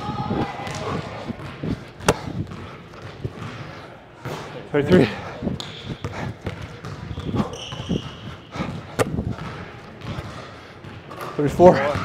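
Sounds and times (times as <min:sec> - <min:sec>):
basketball bouncing on wooden floor: 0:00.6 - 0:03.7, 0:05.6 - 0:11.1
footsteps thudding: 0:01.5 - 0:03.6, 0:08.6 - 0:10.2.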